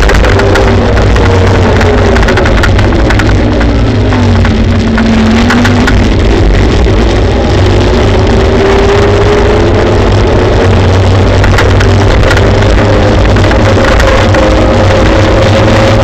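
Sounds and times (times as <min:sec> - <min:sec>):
wind on the microphone: 0:00.0 - 0:16.0.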